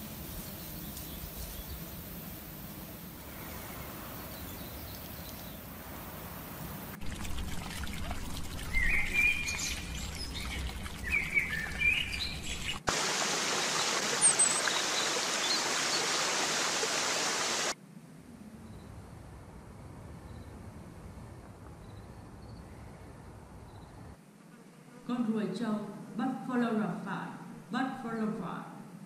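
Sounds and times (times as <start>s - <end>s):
steady hiss like running water: 0.0s - 17.8s
faint outdoor background noise: 0.0s - 29.0s
birds chirping: 3.2s - 5.8s, 8.5s - 16.6s.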